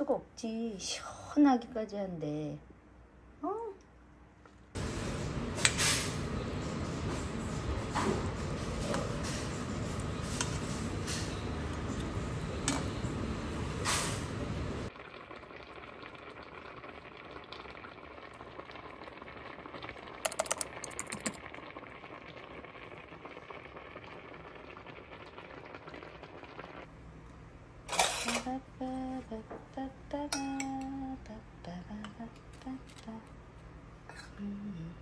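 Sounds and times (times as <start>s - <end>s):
pasta water boiling: 4.8s - 27.0s.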